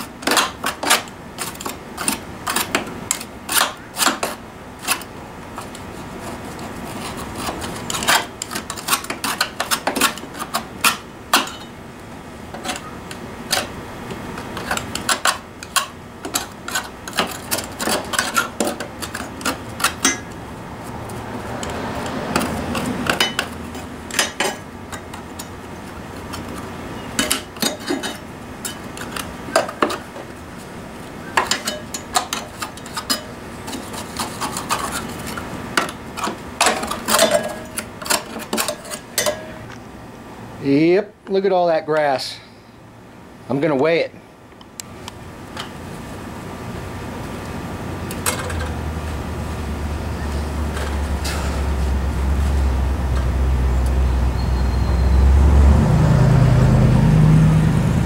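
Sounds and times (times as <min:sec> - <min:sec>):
scraper scraping metal deck: 0:00.0 - 0:11.6, 0:12.5 - 0:39.6.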